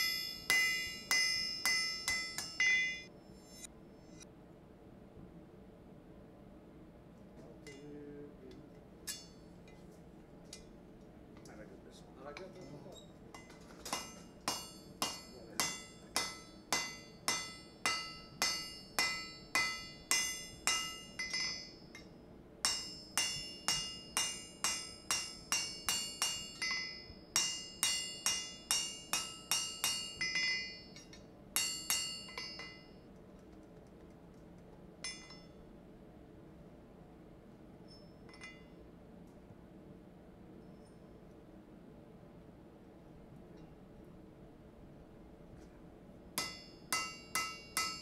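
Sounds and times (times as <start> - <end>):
hammer ringing on hot rivet: 0.0 - 3.7, 13.4 - 33.0, 35.0 - 35.6, 46.4 - 48.0.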